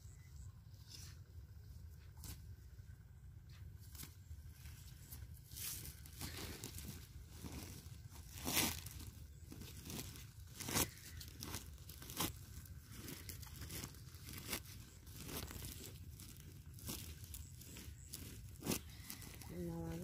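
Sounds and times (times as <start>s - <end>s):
sharp crackles: 5.7s - 20.0s
mesh net bag rustling: 5.8s - 20.0s.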